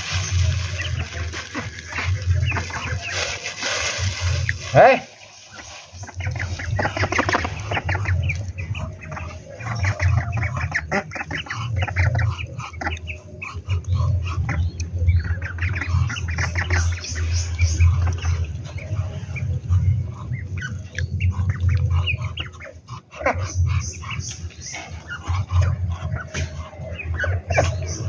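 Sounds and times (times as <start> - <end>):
ducklings peeping: 0.0 - 28.0
low rumble: 0.0 - 28.0
duck calling: 0.2 - 17.1.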